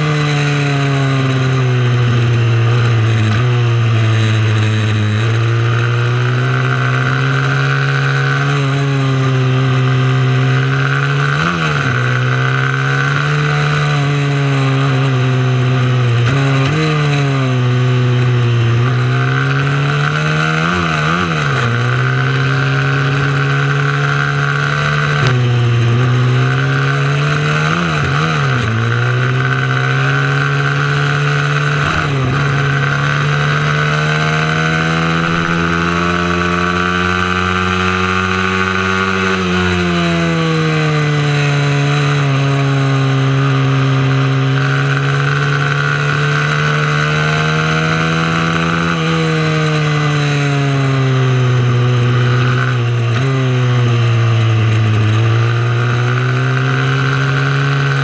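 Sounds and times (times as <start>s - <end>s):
motorcycle engine revving: 0.0s - 58.0s.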